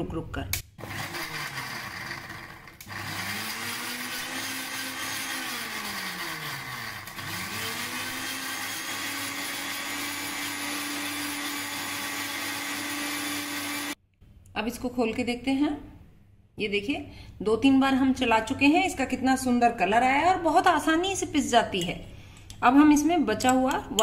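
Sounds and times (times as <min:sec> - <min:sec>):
mixer grinder motor whine: 0:00.8 - 0:14.0.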